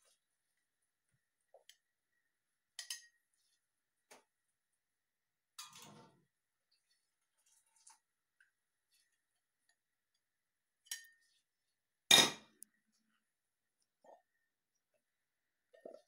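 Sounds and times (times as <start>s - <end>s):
glass jar clinking on counter: 12.1s - 12.5s.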